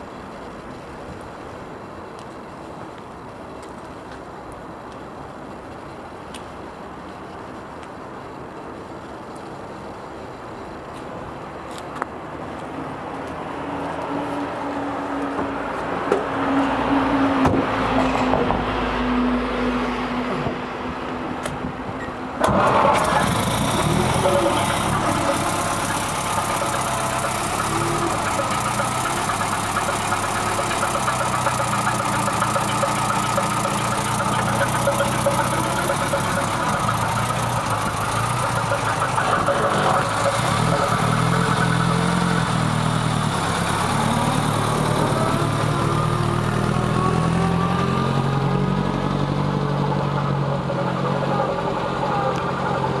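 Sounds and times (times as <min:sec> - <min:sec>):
car engine running: 0:22.6 - 0:53.0.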